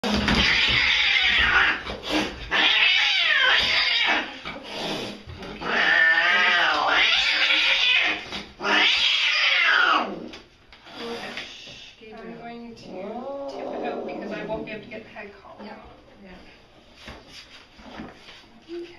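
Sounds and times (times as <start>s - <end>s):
cat yowling: 0.2s - 1.8s, 2.5s - 4.4s, 5.6s - 10.2s.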